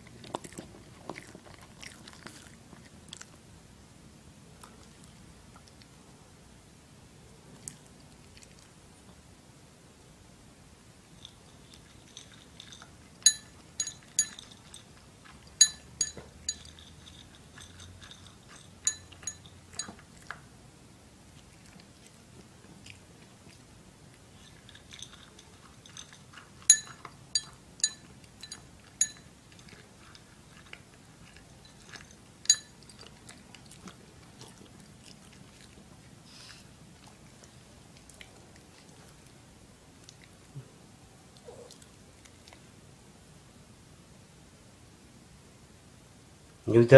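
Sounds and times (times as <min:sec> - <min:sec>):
dog crunching dry kibble: 0:00.0 - 0:03.4, 0:11.1 - 0:20.4, 0:21.3 - 0:39.4.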